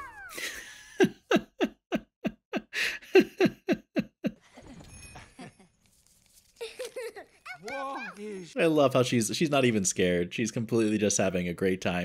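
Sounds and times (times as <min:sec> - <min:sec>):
person laughing: 0:00.1 - 0:05.6, 0:06.6 - 0:08.0.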